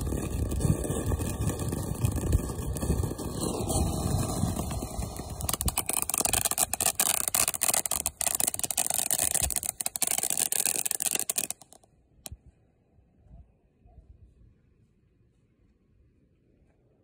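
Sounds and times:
firework crackling hiss: 0:00.0 - 0:11.8
sharp crack: 0:00.0 - 0:12.4.

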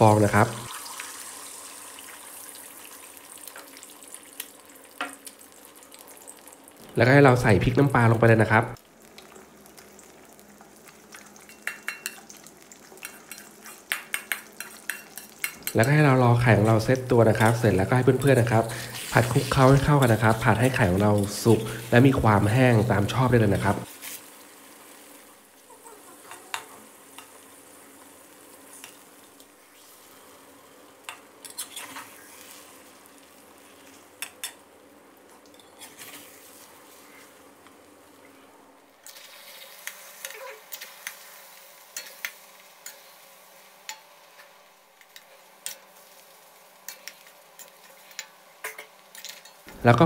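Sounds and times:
eggs sizzling in oil: 0:00.0 - 0:50.0
metal spatula scraping a pan: 0:31.4 - 0:32.8, 0:35.6 - 0:37.3.

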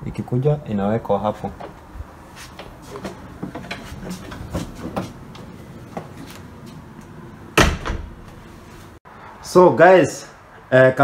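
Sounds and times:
door shutting with a thud: 0:07.6 - 0:08.4.

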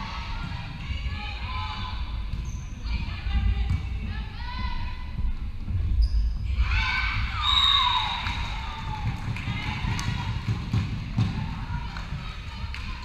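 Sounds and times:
thuds of feet and ball: 0:03.4 - 0:04.2, 0:08.2 - 0:12.4
players shouting and calling out: 0:06.5 - 0:13.0.

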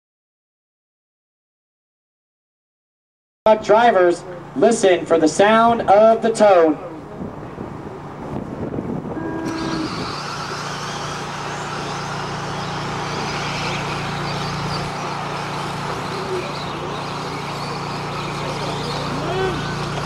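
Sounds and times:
rc trucks motor whine: 0:09.1 - 0:20.0
electronic start tone: 0:09.2 - 0:15.4.

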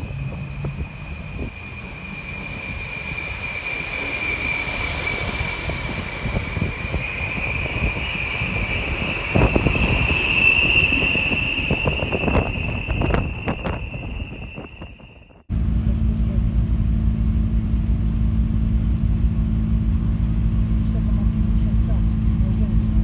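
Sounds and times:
train wheel squeal: 0:00.0 - 0:15.4
train wheels rumbling: 0:00.0 - 0:23.0.

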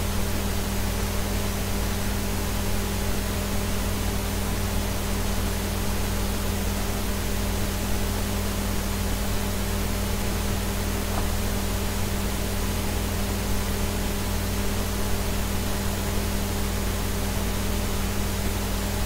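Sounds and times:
low electrical hum: 0:00.0 - 0:19.0
steady hiss: 0:08.2 - 0:15.8.

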